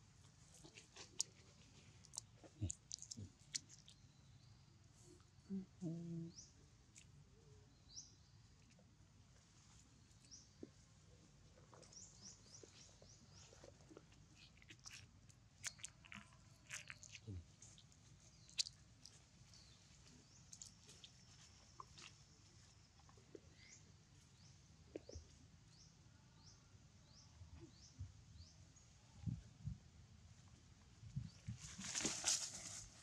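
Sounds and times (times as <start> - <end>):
twigs and leaves crunching: 31.6 - 33.0.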